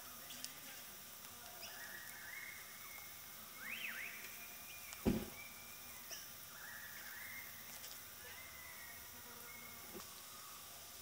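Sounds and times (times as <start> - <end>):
low thump: 5.0 - 5.4.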